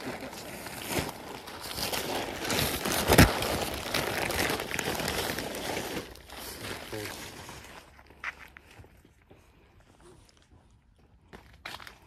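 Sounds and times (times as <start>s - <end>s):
tent fabric rustling: 0.0s - 7.7s.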